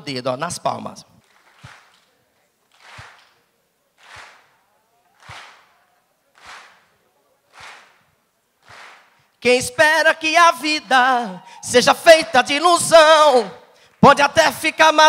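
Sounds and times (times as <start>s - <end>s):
hand claps: 1.2s - 9.2s.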